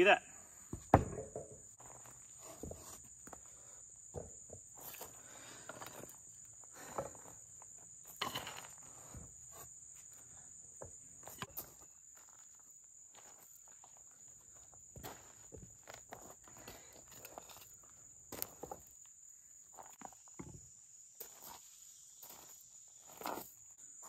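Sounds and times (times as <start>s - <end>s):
insects droning: 0.0s - 24.0s
wood knocking and scraping on wood: 0.7s - 3.4s, 4.1s - 5.0s.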